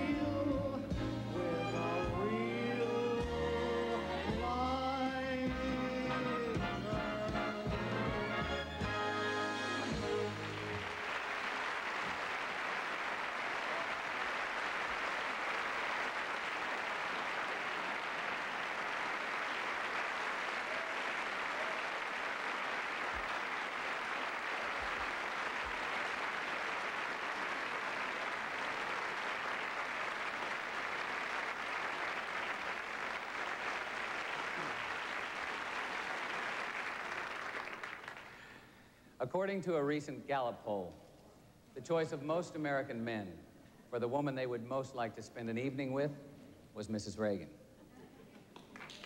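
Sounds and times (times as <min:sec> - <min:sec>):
audience applauding: 0:09.4 - 0:38.9, 0:48.5 - 0:49.0.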